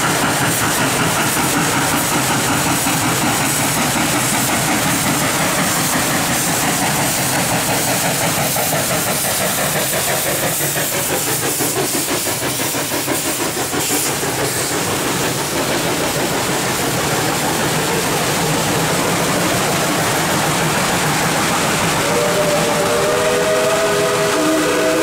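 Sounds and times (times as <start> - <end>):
steam hissing: 0.0 - 25.0
steam locomotive exhaust beats: 0.0 - 25.0
steam whistle chord: 22.0 - 25.0.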